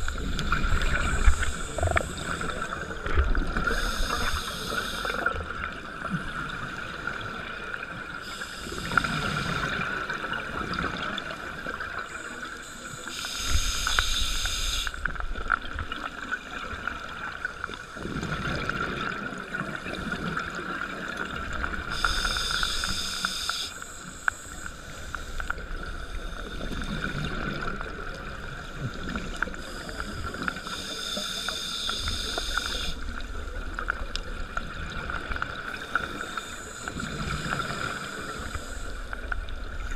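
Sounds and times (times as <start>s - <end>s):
diver breathing through regulator: 3.6s - 5.3s, 21.9s - 25.4s, 29.6s - 33.0s.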